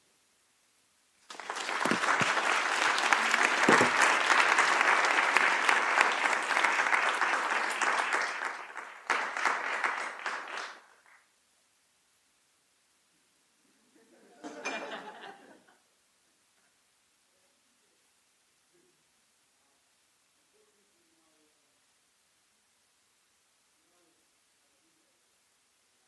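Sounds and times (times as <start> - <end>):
audience applause: 1.2 - 11.2.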